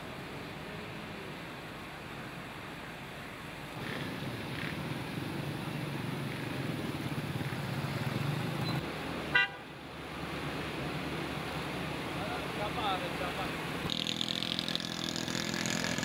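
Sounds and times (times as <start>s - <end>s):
engine hum: 0.0s - 16.0s
car horn toot: 9.3s - 9.6s.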